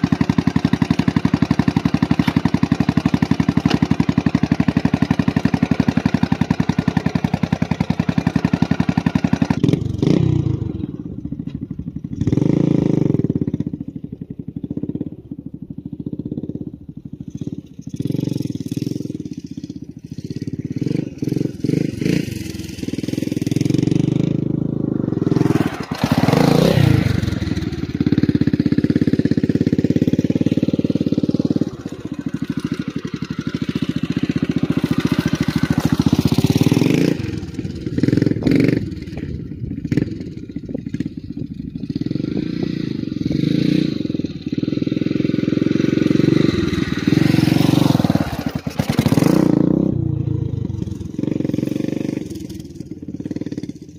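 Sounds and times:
dirt bike engine revving: 0:00.0 - 0:11.0, 0:12.1 - 0:13.8, 0:17.3 - 0:53.9.

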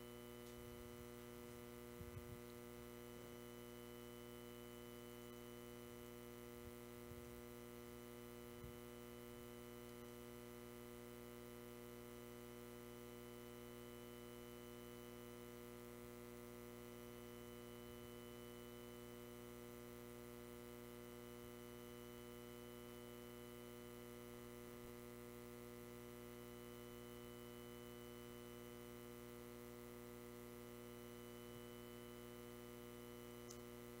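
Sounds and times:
steady electrical hum: 0:00.0 - 0:34.0
faint clicks: 0:33.4 - 0:33.7.

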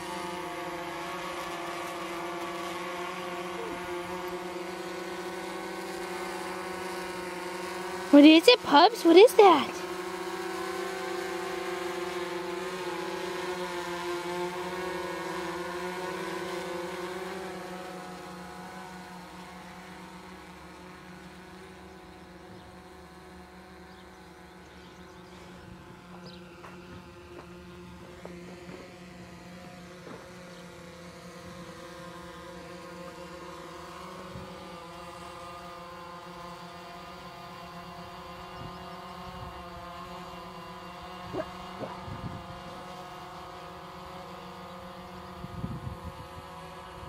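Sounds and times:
drone propellers buzzing: 0:00.0 - 0:47.0.

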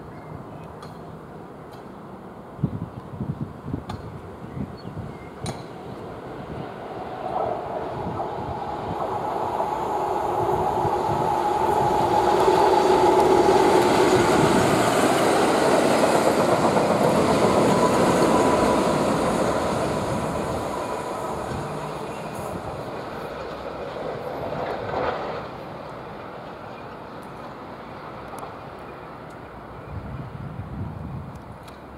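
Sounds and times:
diesel locomotive engines passing: 0:00.0 - 0:31.9
train wagons rolling on track: 0:05.4 - 0:30.4.

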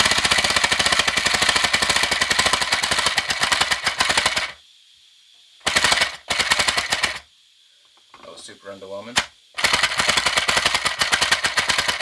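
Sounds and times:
flywheel flicked by hand: 0:09.2 - 0:12.0.

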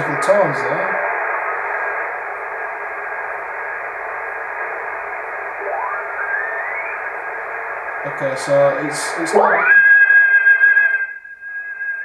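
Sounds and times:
faint steady tones: 0:00.0 - 0:12.0
radio static hiss: 0:00.0 - 0:12.0
whistling tone rising in pitch: 0:05.6 - 0:07.1, 0:09.5 - 0:12.0.

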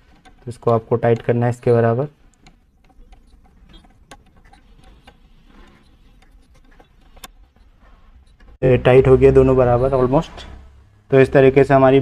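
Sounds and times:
adjuster nuts clicking: 0:00.0 - 0:08.6.

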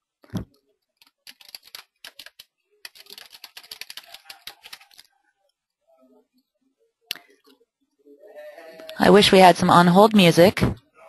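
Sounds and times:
typing on computer keyboard: 0:01.0 - 0:05.1.

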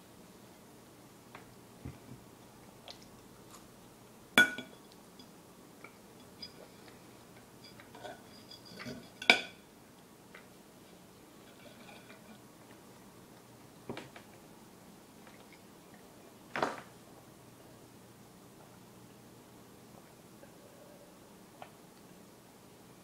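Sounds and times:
cutlery clinking on plate: 0:07.7 - 0:09.6.

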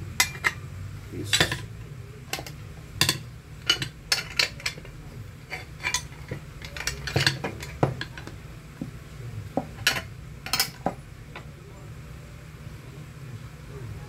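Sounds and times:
wrenches clinking on metal: 0:00.2 - 0:00.6, 0:02.3 - 0:08.4.

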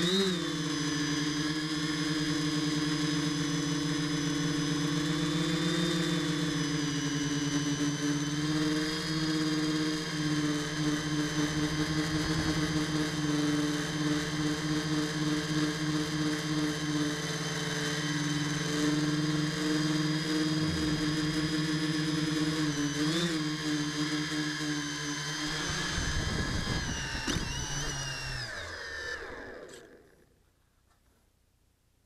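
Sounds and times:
drone motors droning hum: 0:00.0 - 0:30.3.

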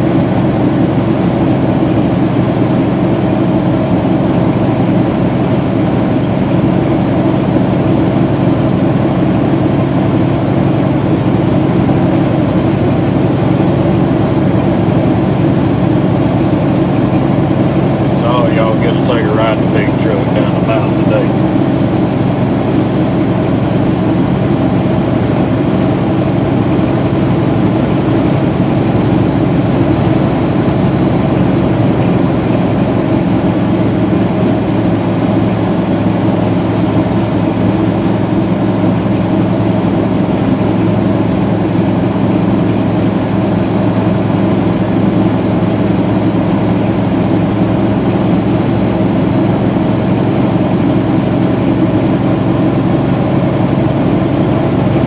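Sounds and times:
diesel engine droning: 0:00.0 - 0:55.0
road noise: 0:13.7 - 0:40.0.

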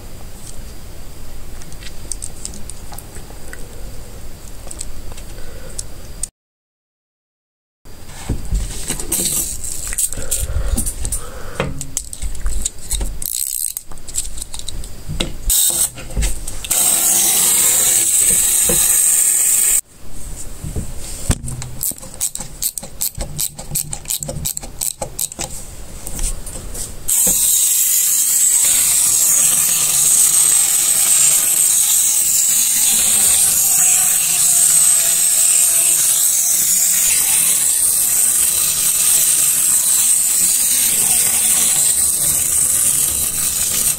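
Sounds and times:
wind-up toy gearing whirring: 0:12.0 - 0:14.8, 0:15.5 - 0:16.0, 0:16.7 - 0:19.8, 0:21.8 - 0:25.4, 0:27.1 - 0:43.9
plastic toy pieces clicking: 0:21.8 - 0:25.5.

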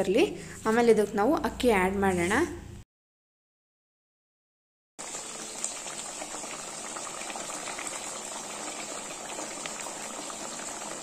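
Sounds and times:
pot boiling with small pops: 0:05.1 - 0:11.0.

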